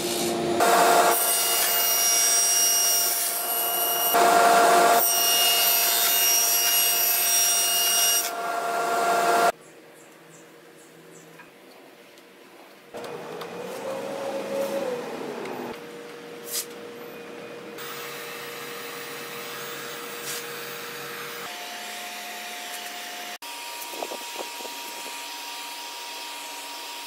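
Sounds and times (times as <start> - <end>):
heat gun fan whining: 0.6 - 6.2, 7.2 - 9.5, 13.0 - 17.1, 17.8 - 27.0.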